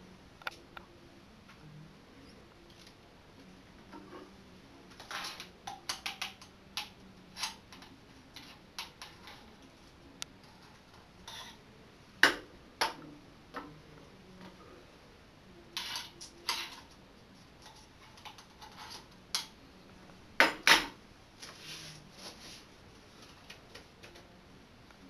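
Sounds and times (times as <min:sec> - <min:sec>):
soft rustling: 0:21.4 - 0:23.4.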